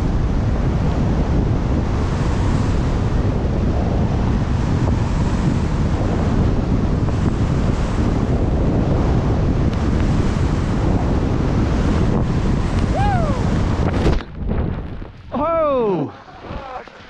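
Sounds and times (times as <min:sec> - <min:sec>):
wind buffeting microphone: 0:00.0 - 0:17.0
skis sliding over snow: 0:14.8 - 0:17.0.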